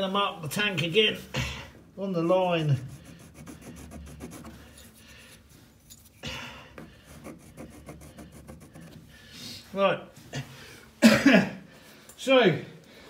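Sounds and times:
pencil scratching on plastic: 0:02.6 - 0:06.2, 0:06.8 - 0:09.1.

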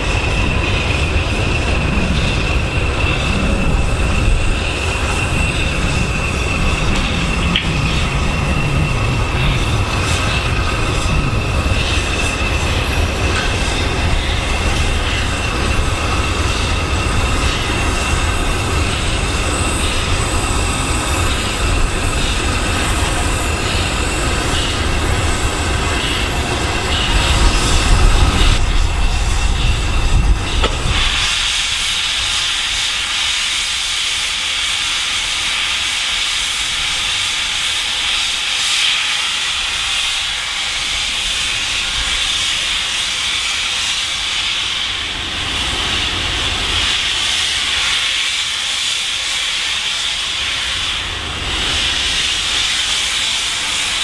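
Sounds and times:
high wheel squeal: 0:00.0 - 0:34.8
steam hissing: 0:00.0 - 0:54.0
train wheels rumbling on rails: 0:00.0 - 0:54.0.

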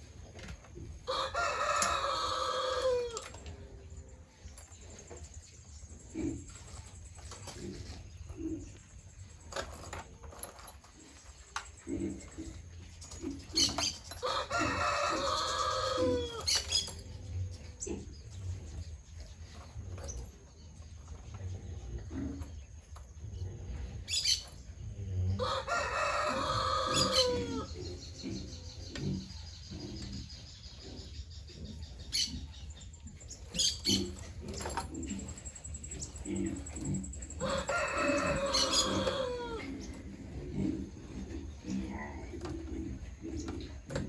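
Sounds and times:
rooster crowing: 0:01.1 - 0:03.3, 0:14.2 - 0:16.4, 0:25.4 - 0:27.7, 0:37.4 - 0:39.9.

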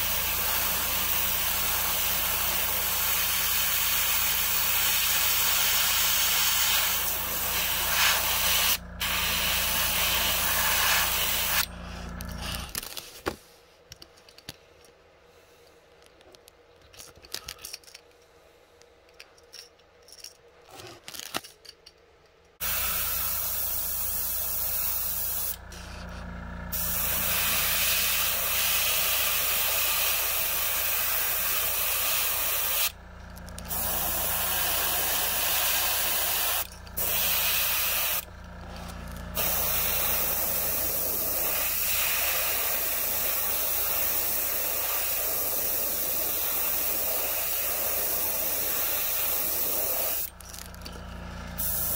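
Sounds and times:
airbrush spraying hiss: 0:00.0 - 0:11.7, 0:22.6 - 0:25.6, 0:26.7 - 0:33.0, 0:33.7 - 0:38.3, 0:39.4 - 0:50.3, 0:51.6 - 0:51.9
compressor humming: 0:00.0 - 0:12.8, 0:22.6 - 0:51.9.

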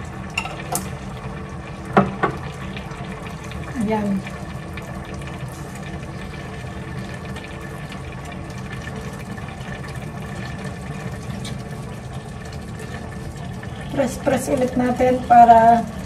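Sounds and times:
liquid bubbling in a pan: 0:00.0 - 0:16.0.

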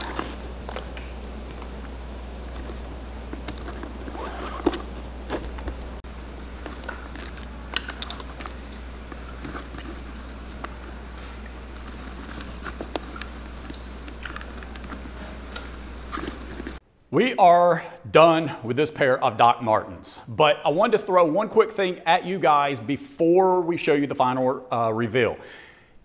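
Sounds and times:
steady low hum: 0:00.0 - 0:21.1
laces rustling and clicking: 0:02.5 - 0:16.8.

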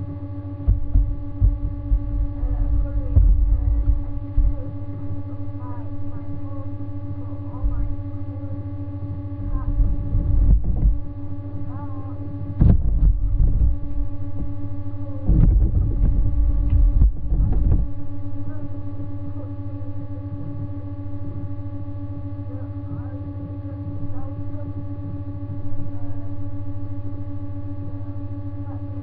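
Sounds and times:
electrical hum: 0:00.0 - 0:29.0
low bumps and knocks: 0:00.6 - 0:04.9, 0:09.4 - 0:11.1, 0:12.6 - 0:14.6, 0:15.2 - 0:18.0.

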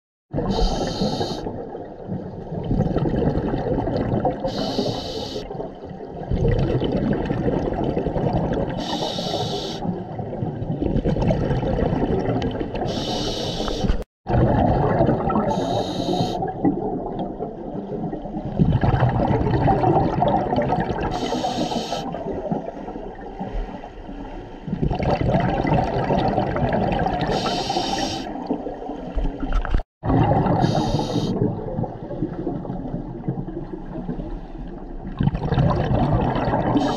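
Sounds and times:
exhaled bubbles rumbling: 0:00.3 - 0:36.9
regulator inhalation hiss: 0:00.6 - 0:01.4, 0:04.5 - 0:05.5, 0:08.8 - 0:09.8, 0:12.9 - 0:14.0, 0:15.5 - 0:16.4, 0:21.2 - 0:22.1, 0:27.3 - 0:28.3, 0:30.6 - 0:31.4.

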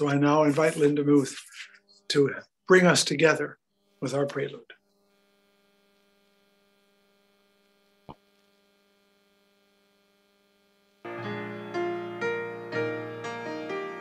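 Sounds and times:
faint electrical hum: 0:00.0 - 0:11.1
piano playing: 0:11.1 - 0:14.0.

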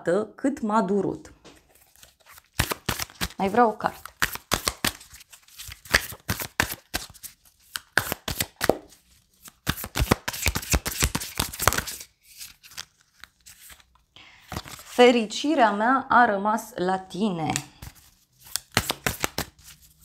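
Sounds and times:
cards being shuffled: 0:01.5 - 0:15.0, 0:17.5 - 0:20.0.

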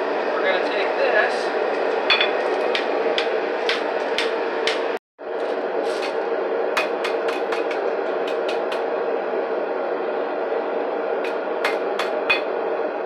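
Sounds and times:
hammer striking metal on anvil: 0:02.1 - 0:04.8, 0:11.3 - 0:12.5.

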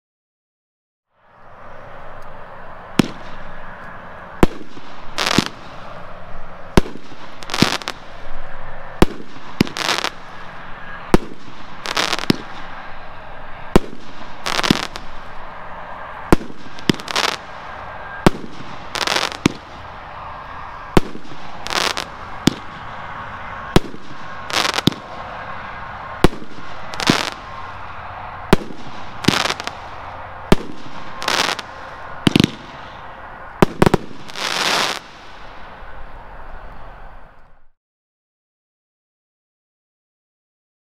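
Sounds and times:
continuous firework hiss: 0:01.3 - 0:37.7
firework cake bangs: 0:28.5 - 0:29.8.

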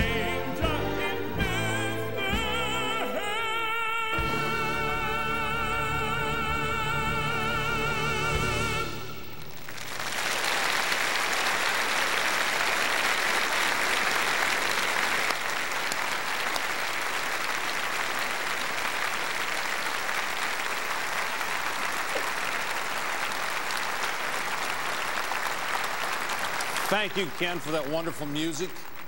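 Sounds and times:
congregation clapping: 0:09.4 - 0:29.0.

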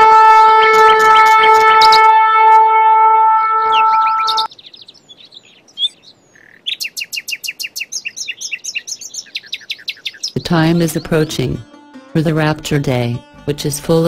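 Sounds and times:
long horn blast: 0:00.0 - 0:04.5
nightingale singing: 0:00.3 - 0:02.2, 0:03.7 - 0:11.6.

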